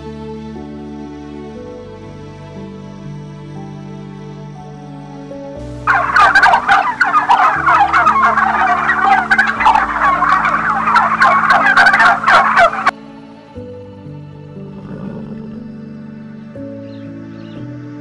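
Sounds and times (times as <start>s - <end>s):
soft background music: 0.0s - 18.0s
turkeys gobbling: 5.9s - 12.9s.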